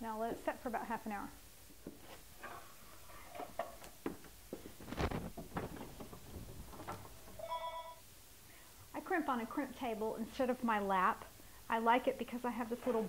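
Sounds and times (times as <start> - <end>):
wooden and metal clunks: 5.3 - 7.4.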